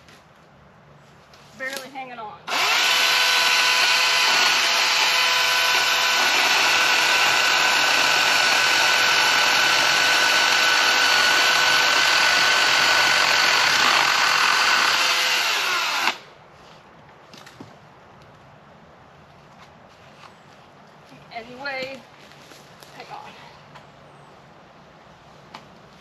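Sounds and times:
chainsaw sawing into wood: 2.5 - 16.2.

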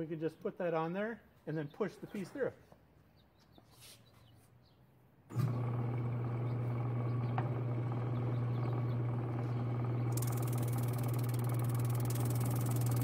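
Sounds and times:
drum sander motor humming: 5.3 - 13.0.

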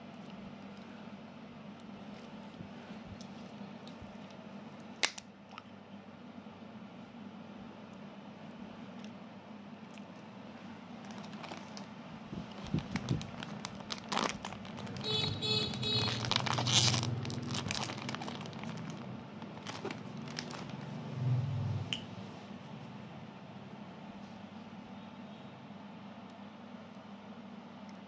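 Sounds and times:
plastic wrapper crinkling: 11.0 - 21.0.

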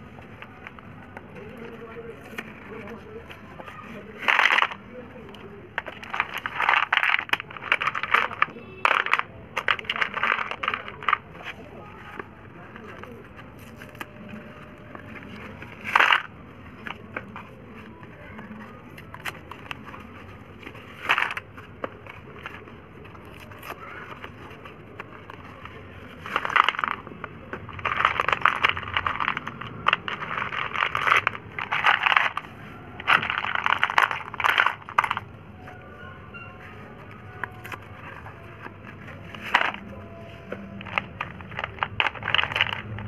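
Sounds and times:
cardboard rustling: 0.0 - 43.0
slate pencils clattering: 0.0 - 43.0.

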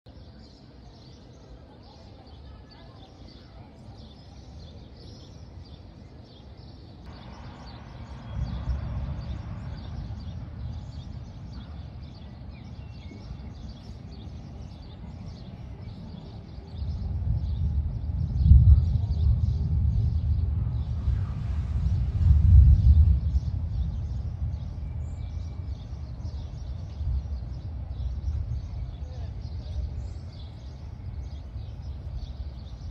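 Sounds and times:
birds chirping: 0.1 - 32.9
distant thunder rumbling: 7.1 - 30.0, 30.8 - 32.9.

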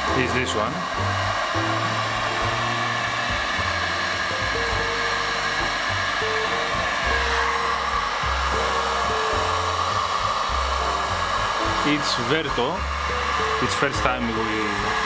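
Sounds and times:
background music with bass: 0.0 - 15.0
heat gun blowing air: 0.0 - 15.0.

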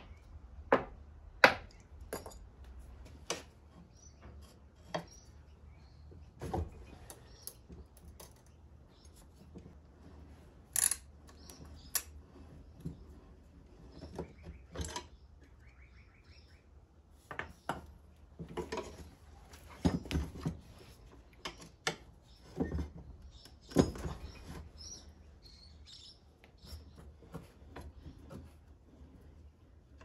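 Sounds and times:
faint bird chirping: 3.7 - 9.7, 11.2 - 17.8, 21.0 - 28.7.

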